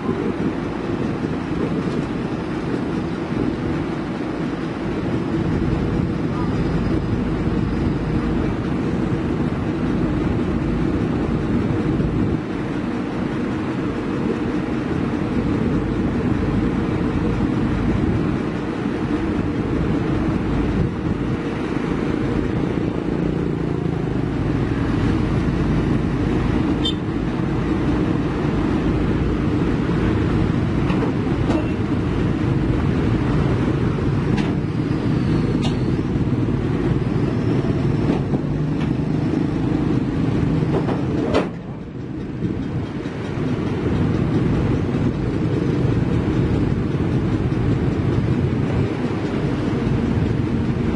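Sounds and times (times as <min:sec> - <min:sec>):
motorbikes passing: 0:19.7 - 0:41.2.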